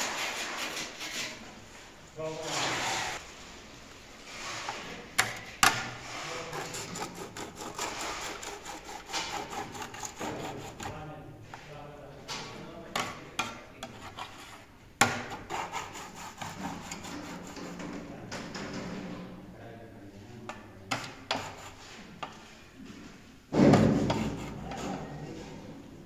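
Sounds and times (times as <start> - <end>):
trowel scraping wet plaster: 0.0 - 1.6, 2.3 - 3.2, 5.8 - 11.0, 13.4 - 18.0, 21.0 - 22.4, 23.8 - 25.2
loud thump: 23.5 - 24.2.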